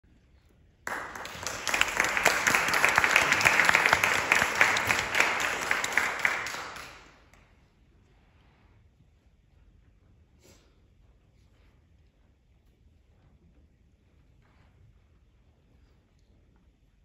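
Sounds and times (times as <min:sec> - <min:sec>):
audience applauding: 0:00.9 - 0:07.4.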